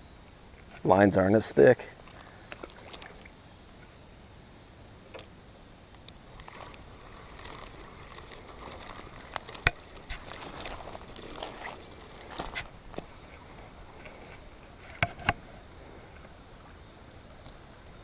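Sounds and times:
fishing reel gears whirring: 6.3 - 15.6.

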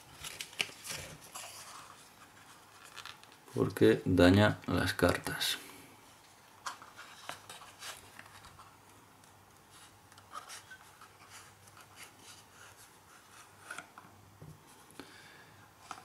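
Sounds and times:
cardboard rustling and scraping: 0.0 - 3.2, 6.2 - 8.8, 9.7 - 14.0.

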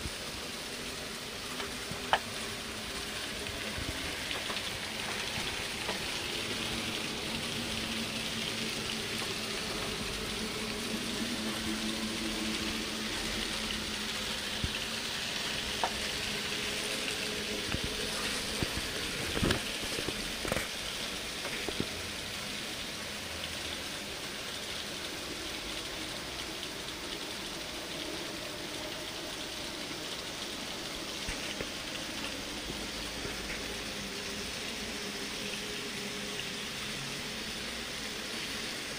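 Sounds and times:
low hum: 0.0 - 22.8.

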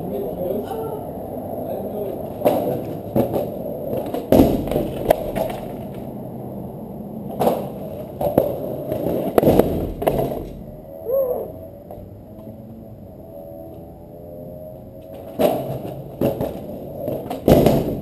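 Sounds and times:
skateboard wheels rolling: 0.0 - 18.0
skateboard clacks and thuds: 2.3 - 6.1, 7.3 - 10.7, 15.1 - 18.0.

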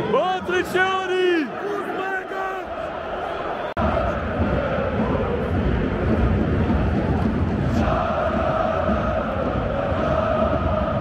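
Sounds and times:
crowd singing a chant: 2.6 - 11.0.

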